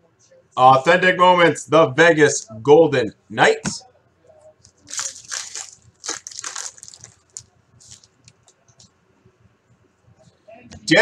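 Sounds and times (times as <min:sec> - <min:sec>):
cards rustling and clicking: 0:04.7 - 0:08.6
foil wrapper tearing and crinkling: 0:04.8 - 0:08.2.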